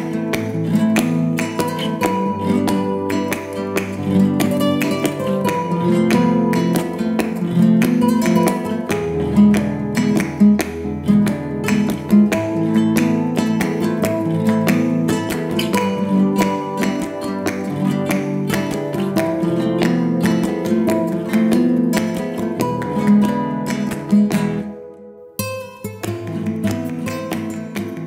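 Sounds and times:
strummed acoustic guitar: 0.0s - 28.0s.

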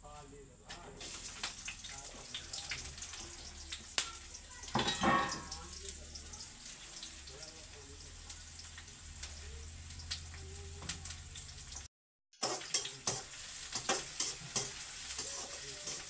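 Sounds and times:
onions sizzling in a pan: 1.0s - 16.0s
spatula scraping a metal pan: 12.4s - 16.0s.

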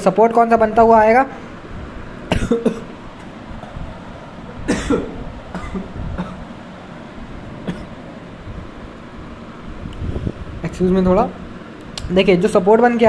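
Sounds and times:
man clearing throat: 2.3s - 2.9s, 4.6s - 6.4s, 7.6s - 7.9s
man coughing: 2.3s - 2.9s, 4.6s - 6.5s, 7.6s - 7.9s.

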